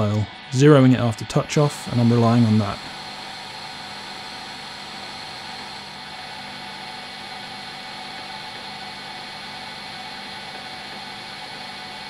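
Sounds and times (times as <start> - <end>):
metal lathe hum and hiss: 0.0 - 12.0.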